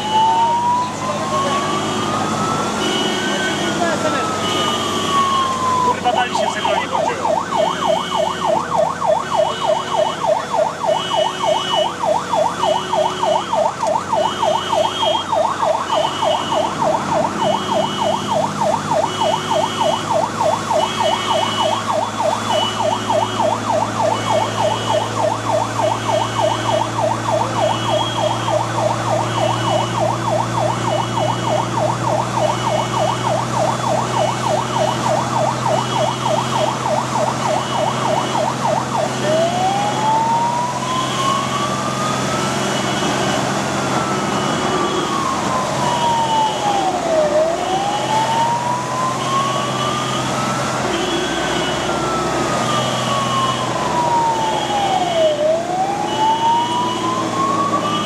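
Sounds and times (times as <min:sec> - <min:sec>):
fire engine siren yelping: 0:00.0 - 0:58.0
second pulsing siren tone: 0:00.0 - 0:58.0.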